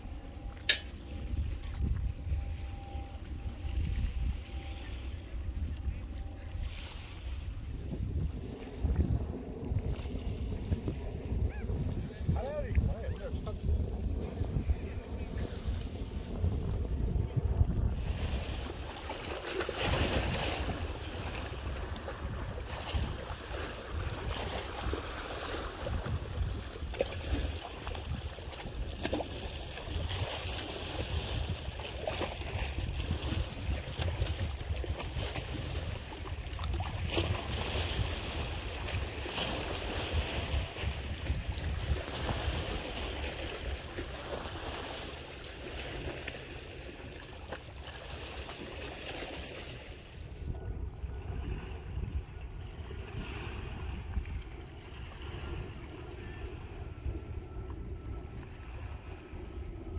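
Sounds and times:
wind buffeting microphone: 0.0 - 59.9.

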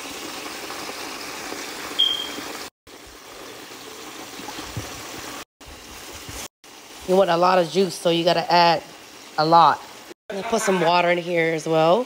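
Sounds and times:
pot bubbling and sizzling: 0.0 - 12.0
brief high squeak: 2.0 - 2.4.

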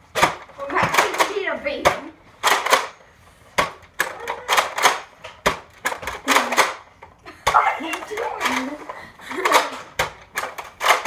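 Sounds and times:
plastic clacks and pops: 3.6 - 11.0.

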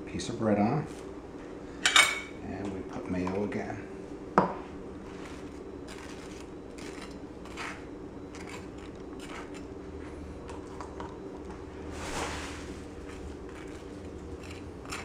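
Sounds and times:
knife scraping toast: 5.2 - 9.7, 13.0 - 15.0.

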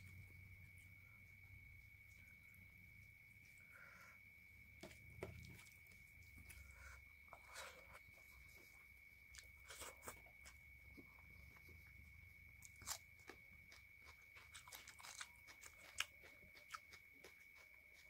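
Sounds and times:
chewing crunches: 4.9 - 18.0.

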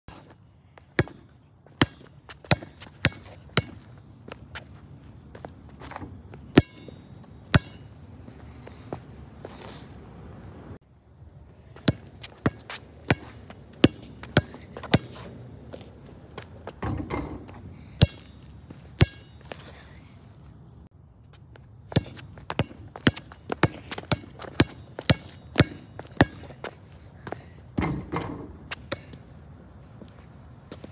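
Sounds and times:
basketball bouncing on concrete: 0.8 - 4.7, 6.1 - 7.9, 11.8 - 15.2, 16.4 - 19.5, 21.5 - 29.2.

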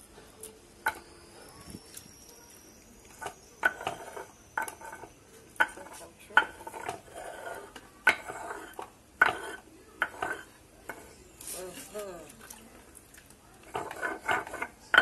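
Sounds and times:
stone scraping on stone: 3.1 - 11.6, 13.6 - 15.0.

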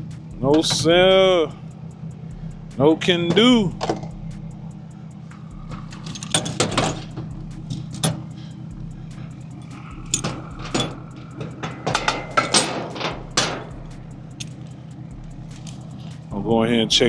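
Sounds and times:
vehicle engine idling: 0.0 - 17.0
metallic clinks and clatter: 5.8 - 8.4, 9.5 - 14.8.

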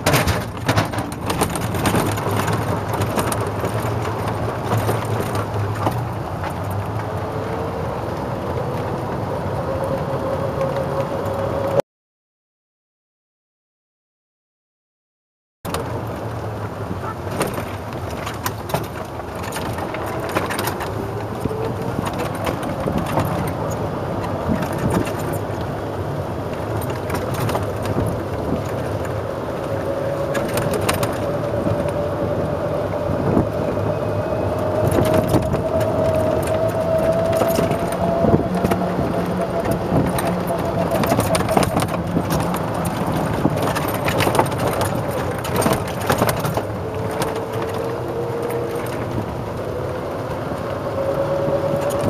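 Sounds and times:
knocks and rattles: 0.0 - 6.7, 34.8 - 47.9
golf cart running: 0.0 - 11.8, 15.7 - 52.0
whine rising in pitch: 29.0 - 43.5.

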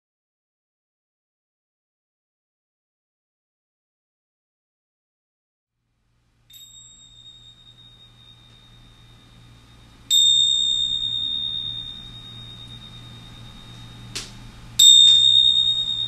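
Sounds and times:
low hum: 6.0 - 16.0
high bell-like ding: 6.5 - 16.0.

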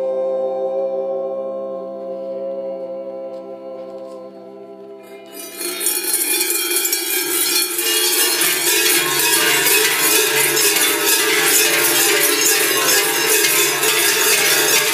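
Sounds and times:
cowbells and crotal bells clanging: 5.3 - 14.9.

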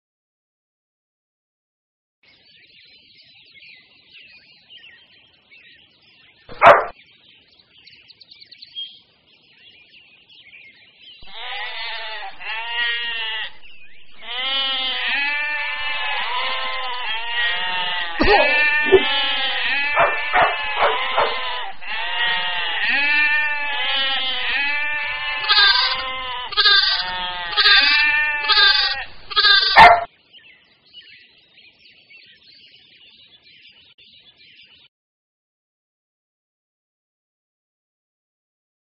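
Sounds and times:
sheep bleating: 11.2 - 30.1.

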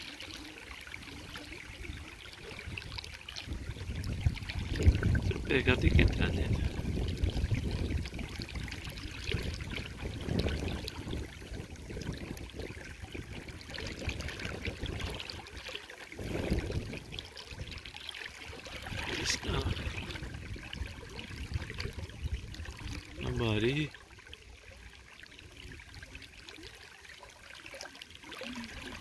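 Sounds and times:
river water trickling: 0.0 - 29.0
wind on microphone: 1.0 - 17.9, 18.5 - 23.8.

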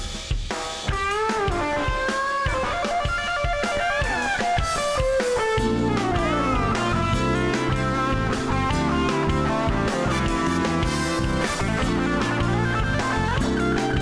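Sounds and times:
drum kit: 0.0 - 14.0
electric guitar lead: 0.9 - 14.0
heavy bass and chords: 3.7 - 14.0.

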